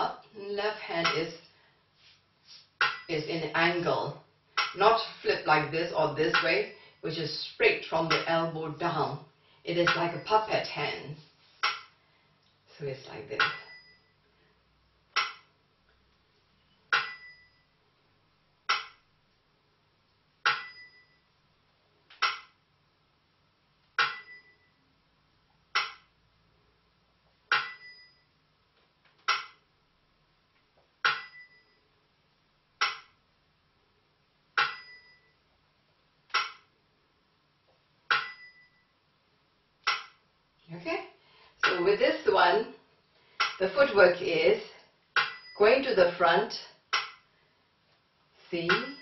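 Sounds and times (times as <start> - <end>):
clapper striking: 2.8 - 3.1, 20.5 - 21.0, 34.6 - 35.1.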